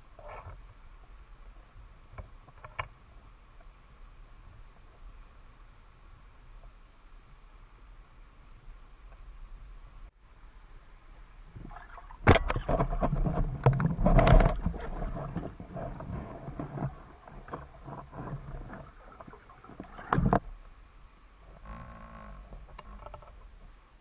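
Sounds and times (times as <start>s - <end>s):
underwater rushing noise: 11.4s - 21.8s
underwater clicks: 11.6s - 20.5s
underwater knocks: 11.6s - 20.5s
underwater scraping: 11.6s - 20.6s.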